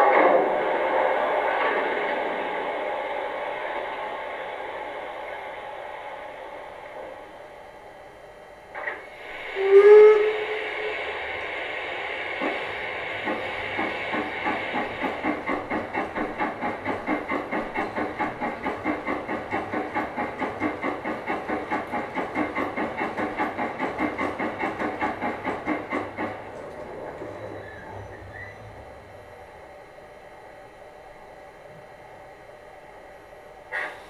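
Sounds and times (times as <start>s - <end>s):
steam hiss: 0.0s - 7.5s, 8.7s - 28.6s, 33.7s - 34.0s
steam exhaust chuffs: 8.7s - 29.7s, 33.7s - 34.0s
locomotive whistle: 9.4s - 11.4s, 27.3s - 29.0s.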